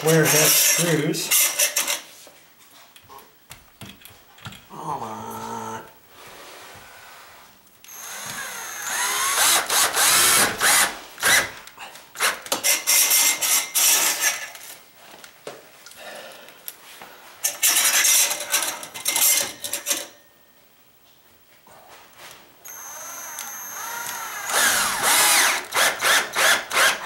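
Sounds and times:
cordless drill driving screws: 7.9 - 11.6, 22.6 - 27.0.

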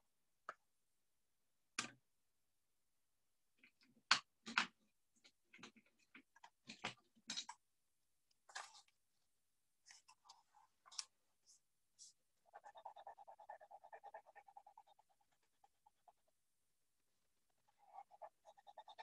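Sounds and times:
crayon scratching on paper: 9.9 - 16.3, 17.5 - 19.0.

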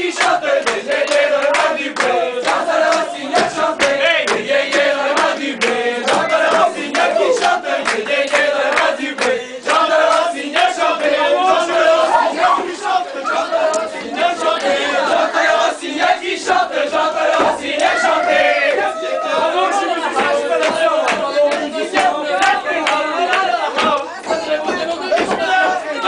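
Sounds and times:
crowd singing rhythmic song: 0.0 - 26.0.

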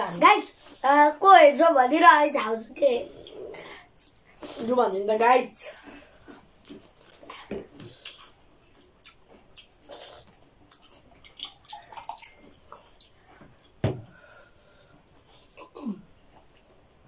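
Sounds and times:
chewing: 5.8 - 13.8.

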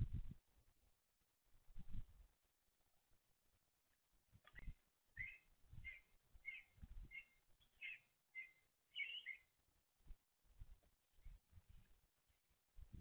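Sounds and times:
small songbird chirping: 4.4 - 9.6.

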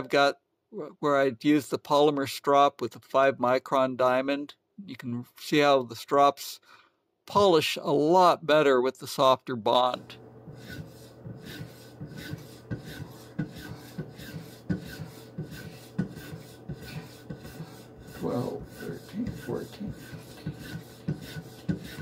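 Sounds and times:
strop rubbing along knife edge: 10.4 - 22.0.

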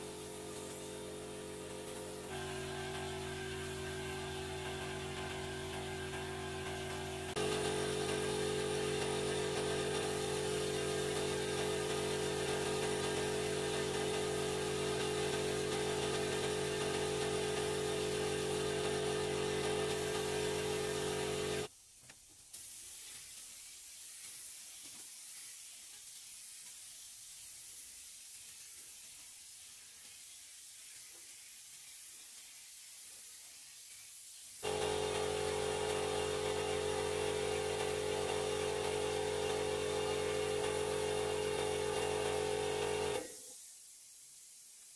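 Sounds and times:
faint hiss: 0.0 - 3.9, 20.0 - 34.6, 43.1 - 44.9
paint spray gun whine: 0.0 - 21.7, 34.6 - 43.6.

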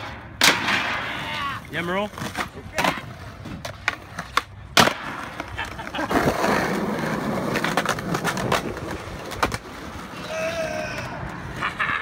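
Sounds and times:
skateboard wheels rolling on concrete: 0.0 - 12.0.

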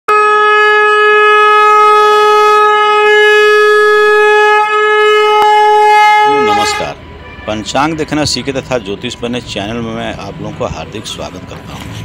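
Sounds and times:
conch shell blown: 0.1 - 7.6.

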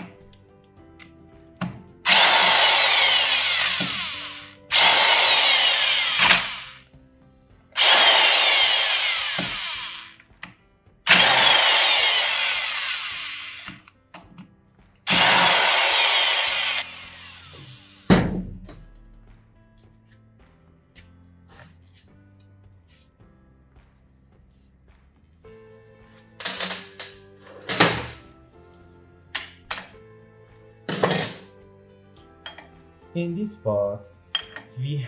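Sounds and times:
power tool whirring on bolts: 2.1 - 6.9, 7.8 - 10.3, 11.1 - 13.9, 15.1 - 18.1.

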